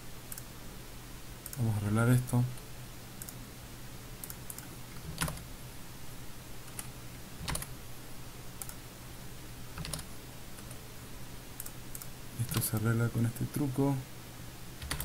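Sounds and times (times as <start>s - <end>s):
low electrical hum: 0.0s - 15.0s
keyboard and mouse clicks: 4.2s - 5.5s, 6.6s - 7.7s, 8.6s - 8.8s, 9.8s - 10.8s, 11.6s - 12.9s, 14.8s - 15.0s.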